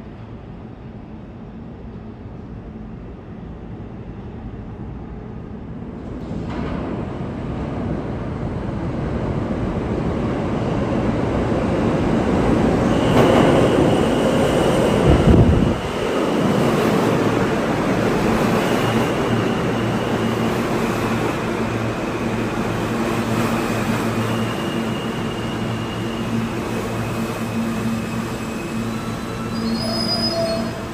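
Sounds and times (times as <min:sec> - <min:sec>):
subway train rumbling: 0:00.0 - 0:30.9
high wheel squeals: 0:24.2 - 0:30.9.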